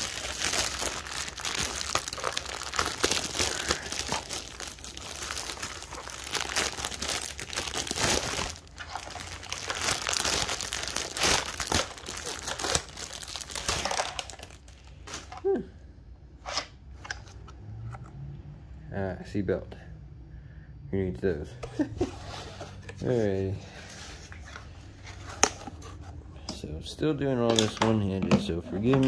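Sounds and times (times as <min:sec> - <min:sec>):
plastic bag crinkling: 0:00.0 - 0:15.3.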